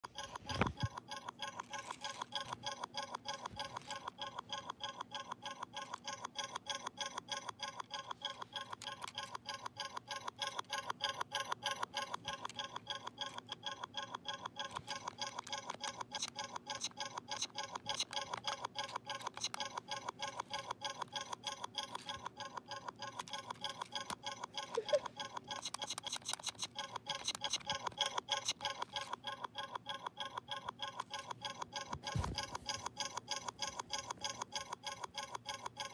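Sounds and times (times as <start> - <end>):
toy speaker electronic pulses: 0.0 - 35.9.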